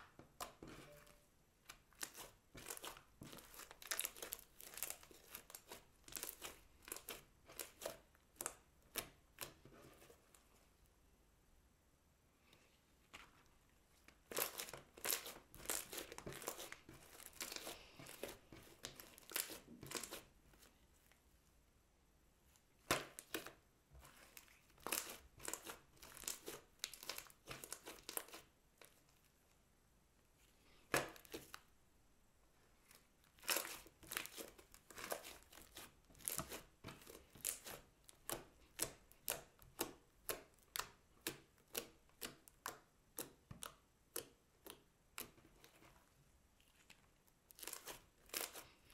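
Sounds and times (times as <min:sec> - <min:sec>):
slime crackling and popping: 0:24.8 - 0:28.5, 0:33.3 - 0:45.3.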